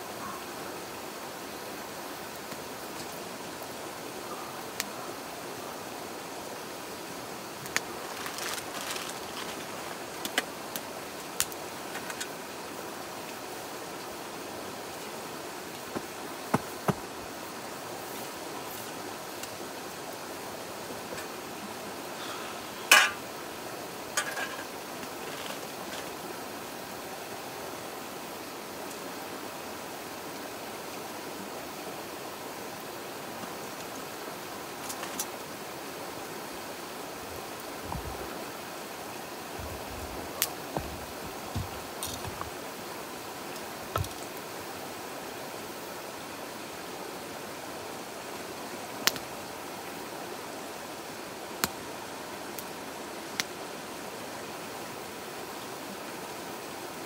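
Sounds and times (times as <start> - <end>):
campfire crackling: 6.0 - 26.7, 37.1 - 44.6, 49.0 - 49.5, 51.5 - 51.9, 52.5 - 53.6
sharp pops from fire: 49.0 - 49.3.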